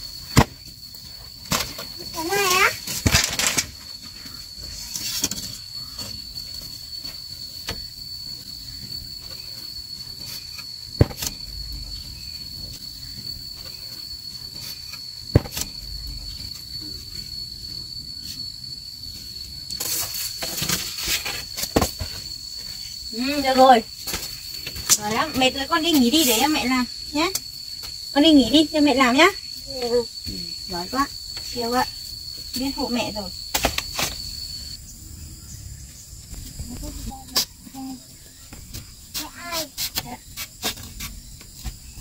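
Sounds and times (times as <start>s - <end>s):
insect droning: 0.0s - 42.0s
bamboo strips knocking and clattering: 0.2s - 17.3s, 19.7s - 22.8s, 33.5s - 34.3s.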